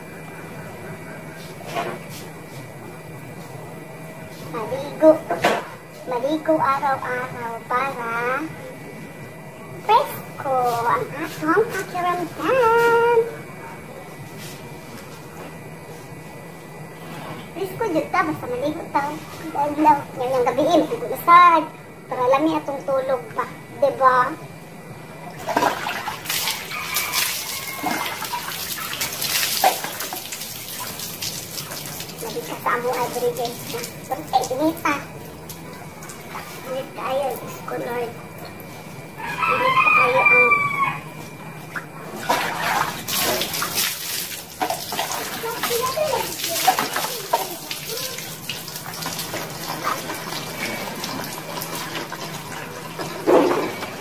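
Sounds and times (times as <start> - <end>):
water splashing over body: 25.4 - 34.7, 42.2 - 52.0.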